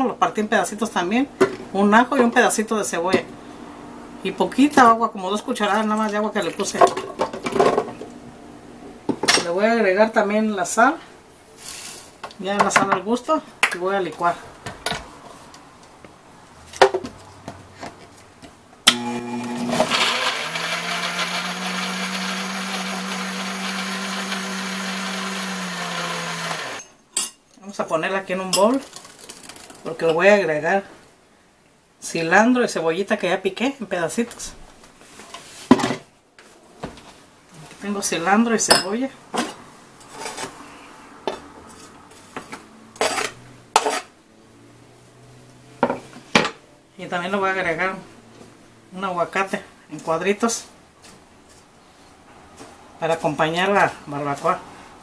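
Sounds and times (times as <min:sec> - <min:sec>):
blender motor running: 0:18.9 - 0:26.8.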